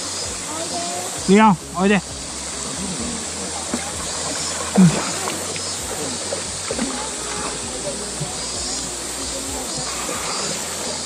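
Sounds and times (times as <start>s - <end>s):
shallow river running: 0.0s - 11.0s
dog splashing through water: 2.6s - 11.0s.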